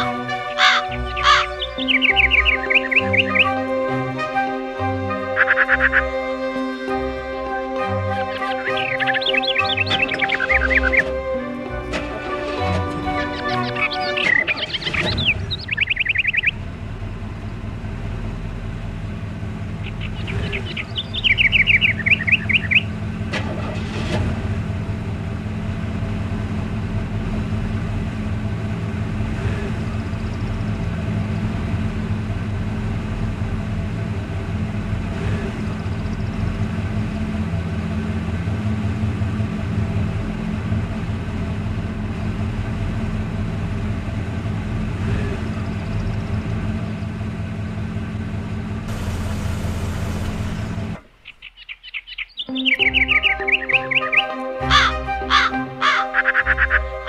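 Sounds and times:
bird chirping trill: 0.0s - 3.8s, 5.1s - 6.9s, 8.1s - 16.6s, 19.8s - 23.0s, 49.0s - 57.0s
engine humming: 0.0s - 57.0s.

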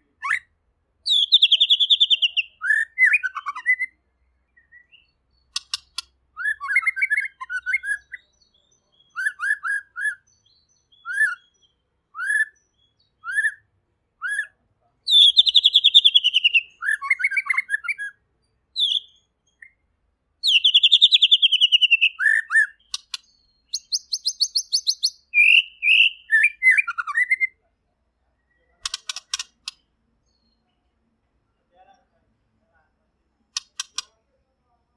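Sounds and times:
bird singing whistled notes: 0.2s - 19.8s, 20.4s - 27.6s
bird high rapid ticking: 5.4s - 6.2s, 20.4s - 26.2s, 28.8s - 29.9s, 33.5s - 34.2s
bird rattling trills: 28.8s - 29.8s, 33.6s - 34.1s.

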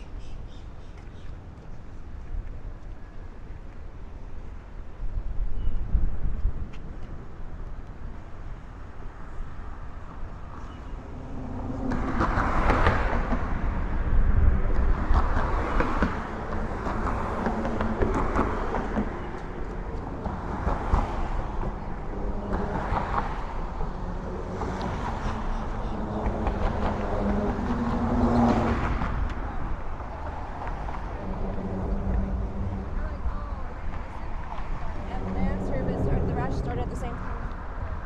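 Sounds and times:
street traffic passing: 0.0s - 38.0s
steady low rumble: 23.4s - 38.0s.

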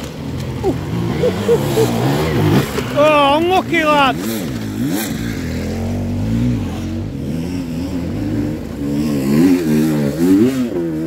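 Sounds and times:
motorcycle engine revving: 0.0s - 11.0s.

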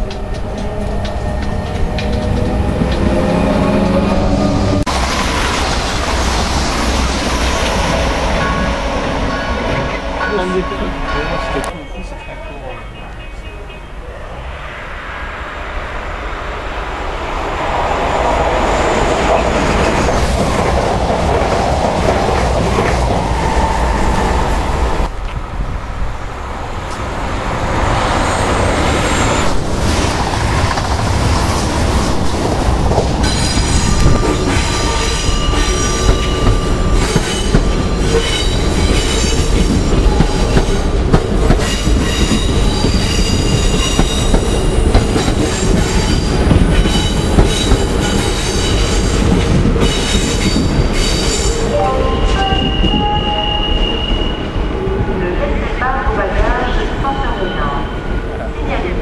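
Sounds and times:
electric trains rumbling on rails: 0.0s - 59.0s
high-pitched wheel squeal: 49.8s - 54.6s.

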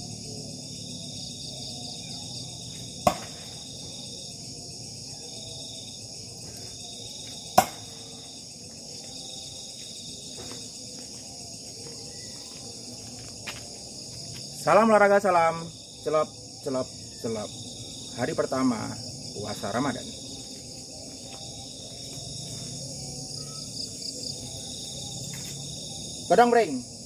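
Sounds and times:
crickets chirping: 0.0s - 27.0s
knives thudding into wood: 3.0s - 3.5s, 7.6s - 7.9s.

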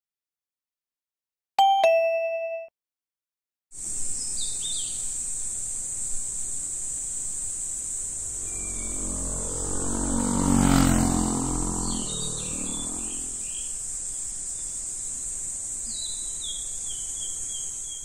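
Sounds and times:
cicadas droning: 3.8s - 18.0s
vehicle passing by: 7.8s - 13.8s
descending bird chirps: 8.0s - 13.8s.

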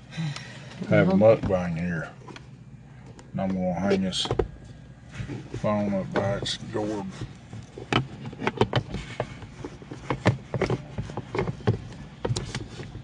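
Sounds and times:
phone handling clicks and knocks: 7.6s - 13.0s.

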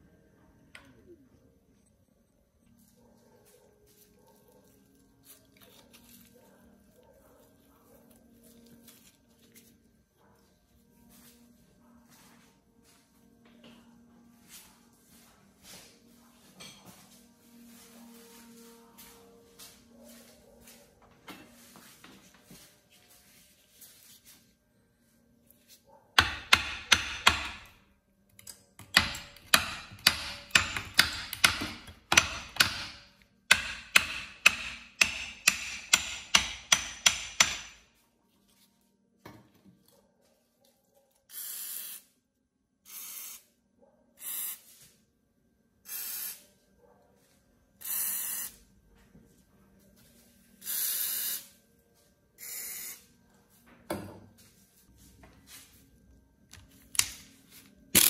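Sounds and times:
hammer striking metal lever: 26.2s - 27.7s, 28.8s - 37.8s
spray can hissing: 41.3s - 42.1s, 42.9s - 43.5s, 44.2s - 44.7s, 45.9s - 46.4s, 47.8s - 48.6s, 50.6s - 51.5s, 52.4s - 53.0s.

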